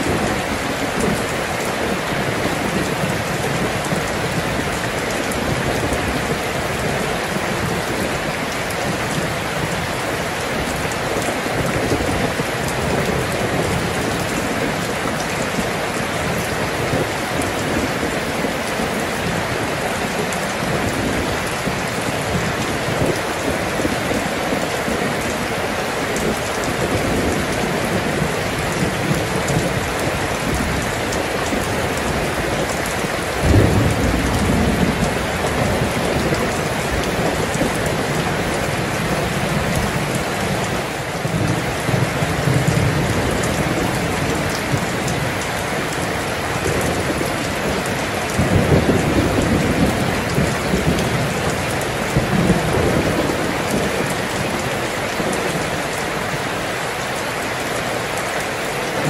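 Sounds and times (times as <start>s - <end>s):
heavy rain pattering: 0.0s - 59.0s
thunder rolling: 26.2s - 38.3s, 46.6s - 54.6s.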